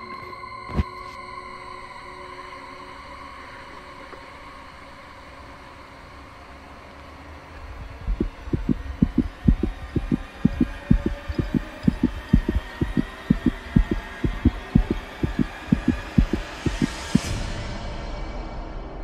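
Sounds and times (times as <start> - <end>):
fast heartbeat thumps: 8.0 - 17.3.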